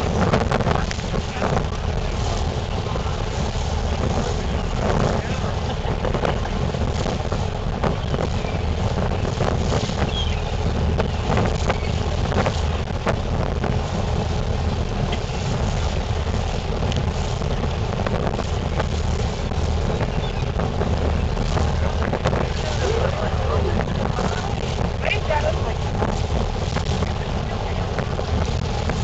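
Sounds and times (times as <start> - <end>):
boat engine rumble: 0.0 - 29.0
wind buffeting microphone: 0.0 - 29.0.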